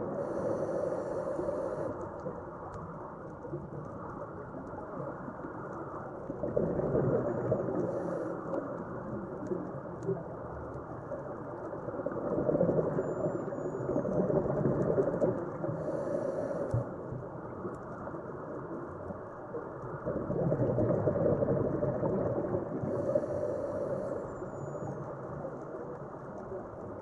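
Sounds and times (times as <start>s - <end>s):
underwater diver breathing: 0.0s - 2.2s, 7.7s - 8.6s, 15.6s - 17.0s, 22.8s - 24.6s
exhaled bubbles: 6.3s - 8.0s, 20.0s - 23.7s.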